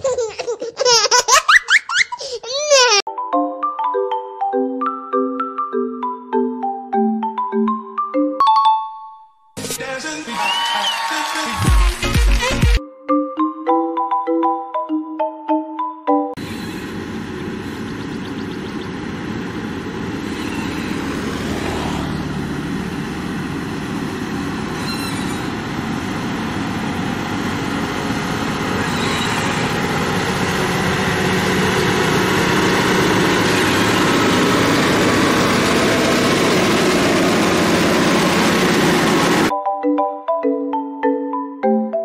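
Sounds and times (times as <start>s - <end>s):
diesel engine running under load: 16.4s - 39.5s.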